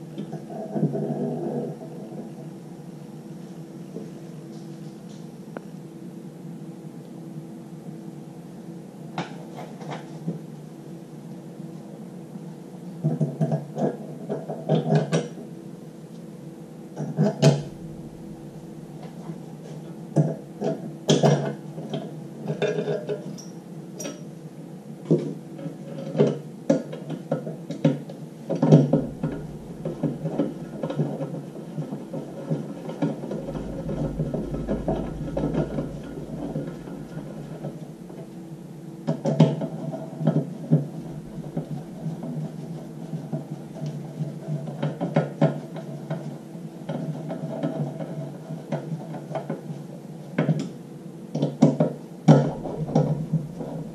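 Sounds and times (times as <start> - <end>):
steady low tone: 17.4 - 20.6, 28.8 - 44.2, 52.3 - 53.9.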